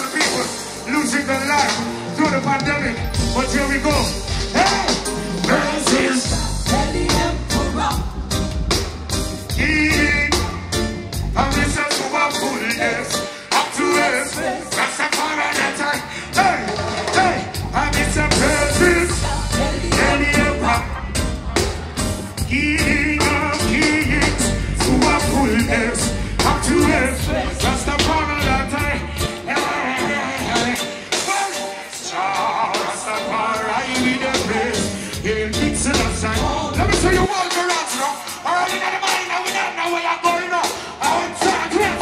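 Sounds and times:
man singing lead vocals: 0.0 - 8.4, 9.5 - 21.6, 22.3 - 42.0
drums: 0.0 - 42.0
live reggae band playing: 0.0 - 42.0
heavy bass: 0.2 - 12.0, 15.8 - 30.9, 33.4 - 37.3.

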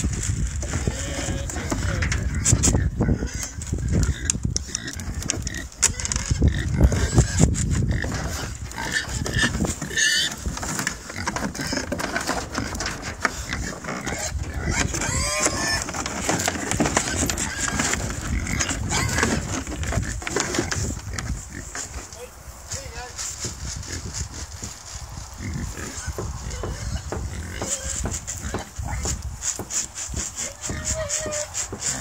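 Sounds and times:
pigs grunting: 0.6 - 22.1, 25.4 - 29.2, 29.8 - 32.0
trotters knocking on wood: 8.0 - 22.0, 25.9 - 32.0.

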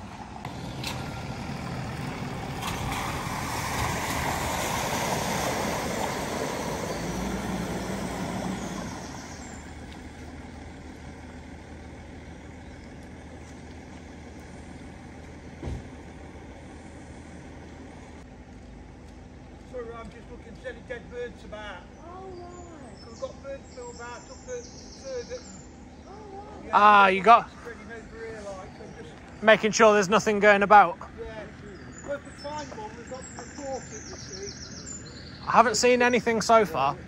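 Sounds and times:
water rushing around wheels: 0.0 - 16.8.

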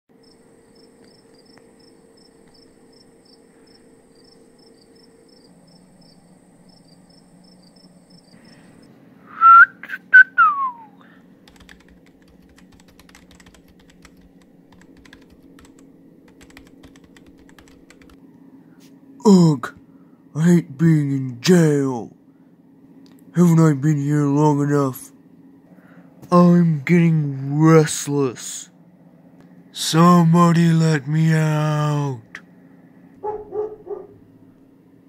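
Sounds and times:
low steady hum: 0.1 - 35.0
person whistling: 9.3 - 11.0
keyboard typing: 11.4 - 18.2.

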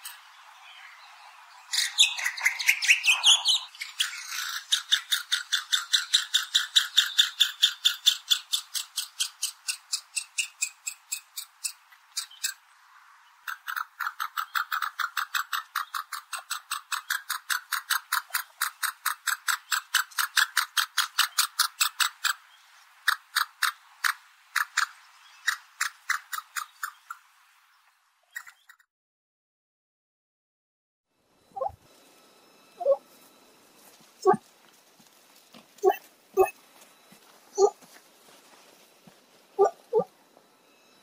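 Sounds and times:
pheasant calling sharp notes: 1.7 - 12.6, 28.3 - 28.8, 31.5 - 31.8, 32.8 - 33.0, 34.2 - 34.4, 35.8 - 36.6, 37.5 - 37.8, 39.6 - 40.1.

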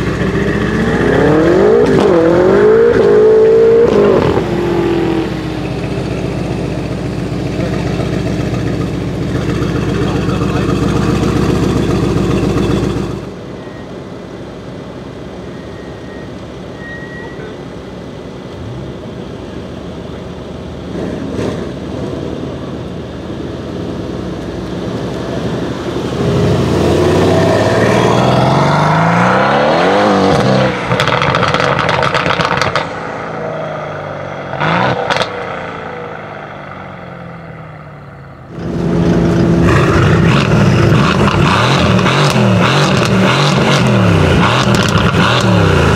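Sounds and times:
car accelerating and passing by: 0.0 - 7.2, 24.7 - 37.6
car exhaust roaring: 0.0 - 45.9.

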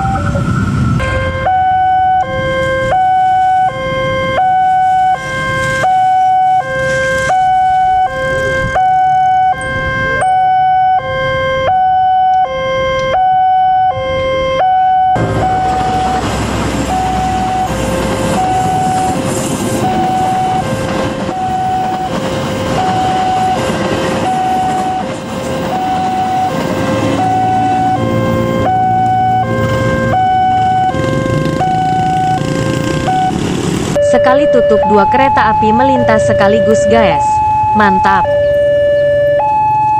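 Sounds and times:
passing train rumble and rattle: 0.0 - 11.3, 14.0 - 34.0
level crossing two-tone alarm: 0.0 - 33.4, 34.0 - 39.9.

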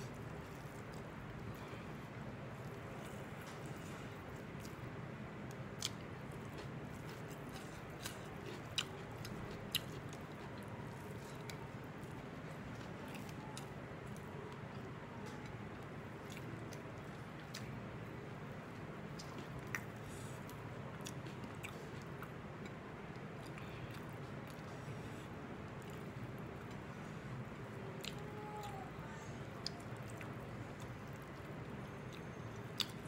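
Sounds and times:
person chewing with mouth clicks: 0.0 - 17.7, 28.0 - 33.0
steady low hum: 0.0 - 33.0.

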